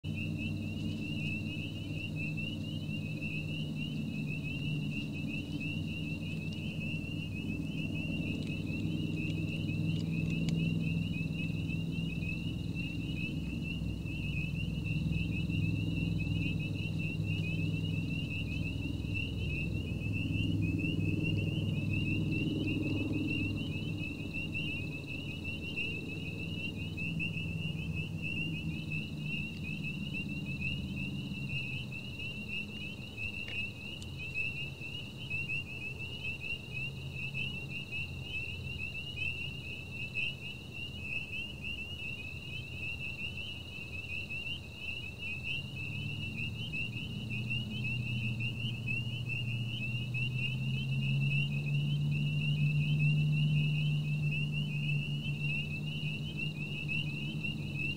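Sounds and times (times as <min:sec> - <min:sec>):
low hum: 0:00.0 - 0:36.2
pulsing animal calls chorus: 0:00.1 - 0:57.9.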